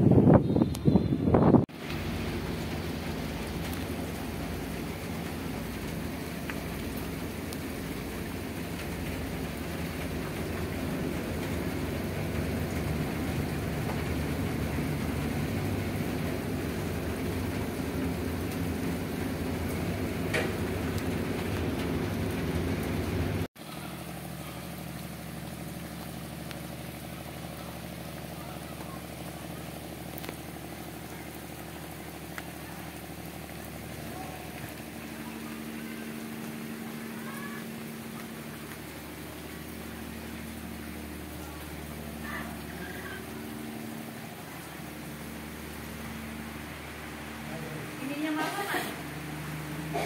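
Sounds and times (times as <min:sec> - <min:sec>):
ship engine humming: 0:00.0 - 0:50.0
rain falling on sea: 0:01.6 - 0:50.0.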